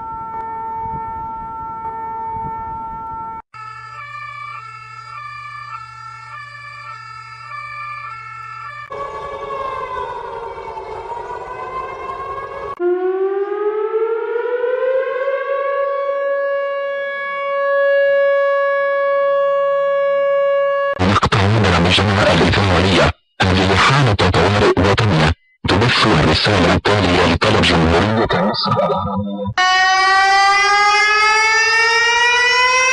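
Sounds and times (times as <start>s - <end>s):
steady siren tone: 0.0s - 21.0s, 28.9s - 32.9s
stepped alarm tones: 0.0s - 21.2s, 28.7s - 32.9s
siren wailing: 0.0s - 22.6s, 28.6s - 32.9s.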